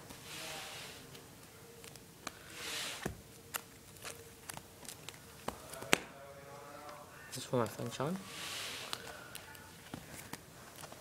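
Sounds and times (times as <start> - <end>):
plastic binder pages rustling: 3.3 - 6.0, 8.8 - 11.0.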